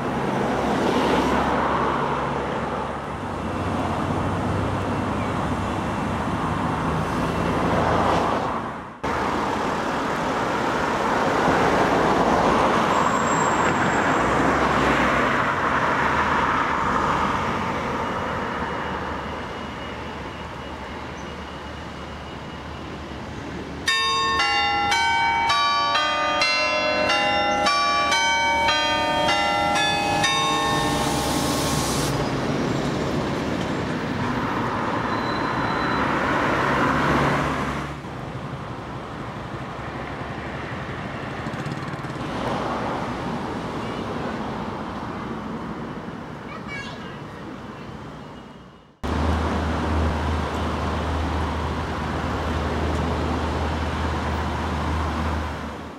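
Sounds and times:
road traffic: 0.0s - 55.9s
carillon bells playing: 23.9s - 32.0s.

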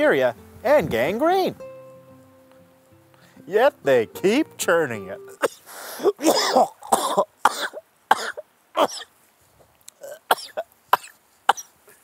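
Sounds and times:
man coughing: 5.4s - 9.1s.

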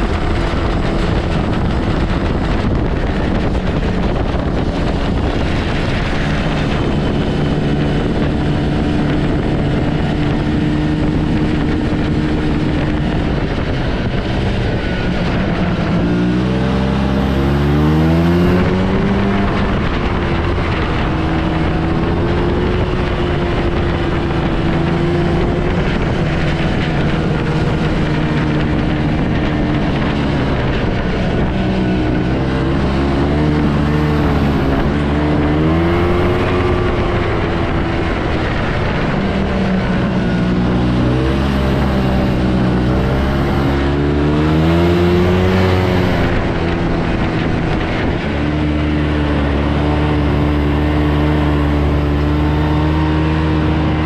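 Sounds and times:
snowmobile engine revving: 0.0s - 54.0s.

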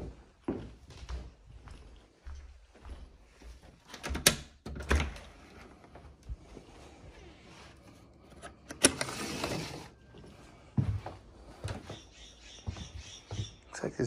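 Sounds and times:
footsteps on wooden deck: 0.0s - 4.0s, 10.1s - 13.9s.

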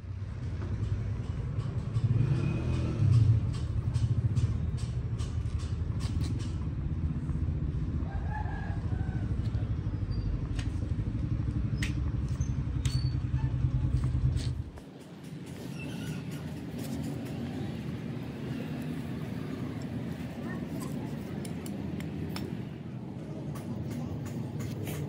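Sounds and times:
sharp clicks and taps: 20.8s - 22.8s.

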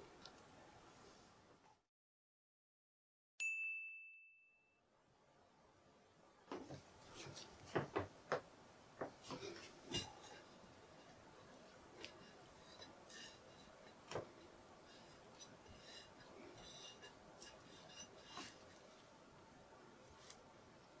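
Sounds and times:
bell-like ding: 3.4s - 4.8s
spatula taps and scrapes: 6.5s - 18.9s.

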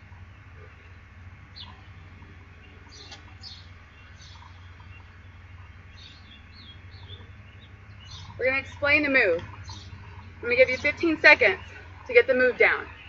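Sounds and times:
songbirds chirping: 0.0s - 13.0s
steady low hum: 0.0s - 13.0s.

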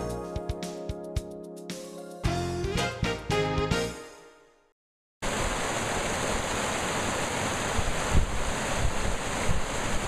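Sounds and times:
water rushing over rocks: 5.2s - 10.0s
wind thumps on microphone: 7.8s - 9.8s.

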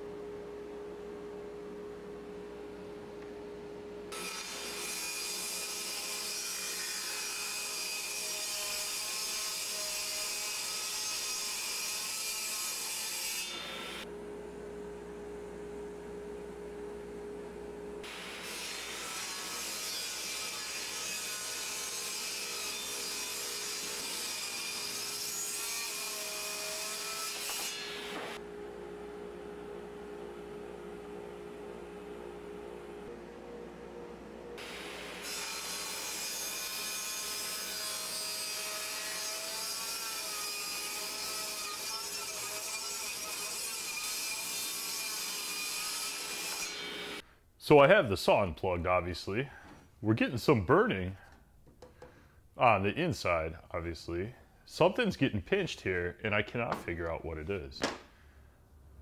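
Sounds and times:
table saw blade whine: 34.6s - 47.2s.

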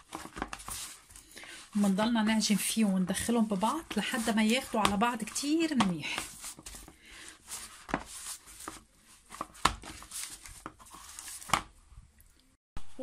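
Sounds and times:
hands kneading dough: 0.0s - 11.8s
dough slapping against tub: 1.8s - 6.9s, 7.6s - 10.8s.

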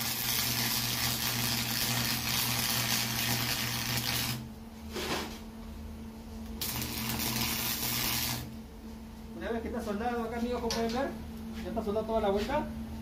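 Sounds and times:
welding arc crackling and hissing: 0.0s - 4.5s, 6.6s - 8.6s.

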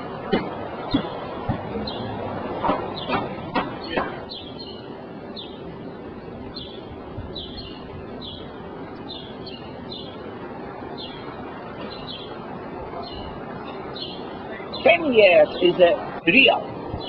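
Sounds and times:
hum of street noise: 0.0s - 17.0s
small bird chirping: 3.8s - 5.6s, 6.5s - 10.2s, 11.0s - 12.4s, 13.0s - 15.8s.

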